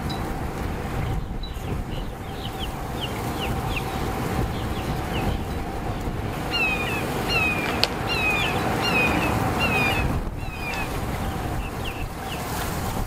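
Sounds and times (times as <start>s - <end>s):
wind rumbling on microphone: 0.0s - 13.0s
bird whistling downward notes: 2.0s - 12.4s.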